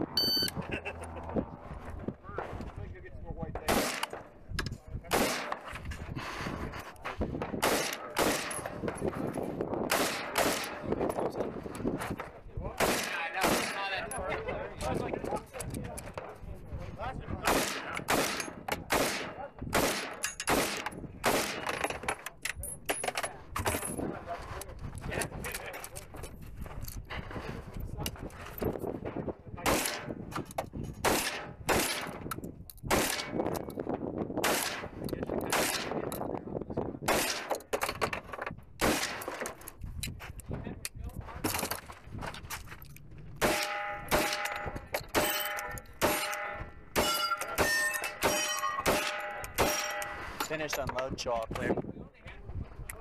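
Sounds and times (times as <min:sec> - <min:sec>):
faint gunshots: 0:03.6 - 0:04.2, 0:05.0 - 0:05.6, 0:12.8 - 0:13.9, 0:17.4 - 0:21.7
loud gunshots: 0:03.6 - 0:04.2, 0:05.0 - 0:05.6, 0:07.6 - 0:08.8, 0:09.9 - 0:10.9, 0:12.8 - 0:13.9, 0:17.4 - 0:21.7, 0:29.6 - 0:30.1, 0:31.0 - 0:32.2, 0:32.9 - 0:33.4, 0:34.4 - 0:35.9, 0:37.0 - 0:37.6, 0:38.8 - 0:39.3, 0:43.4 - 0:50.3
range echo: 0:43.3 - 0:50.4.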